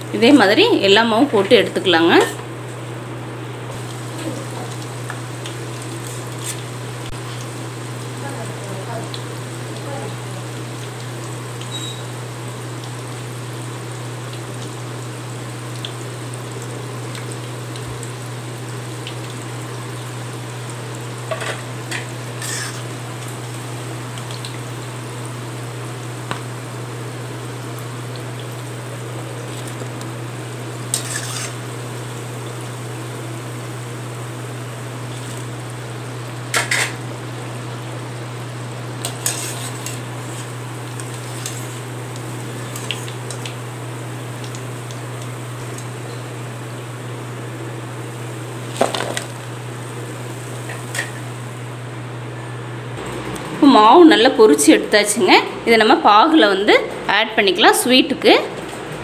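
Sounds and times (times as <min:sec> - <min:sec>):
deep-frying sizzle in oil: 0:00.0 - 0:53.3
steel ladle scraping pan: 0:21.3 - 0:22.9, 0:30.9 - 0:31.6, 0:39.0 - 0:40.6.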